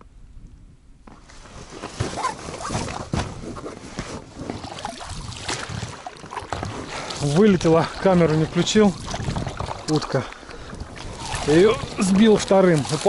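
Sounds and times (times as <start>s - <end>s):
paddle splashing water: 4.1s - 13.0s
oar knocking against boat: 9.0s - 10.0s.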